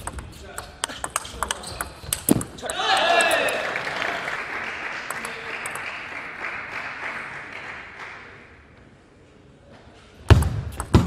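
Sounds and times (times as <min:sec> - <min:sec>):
audience applause: 0:03.0 - 0:08.3.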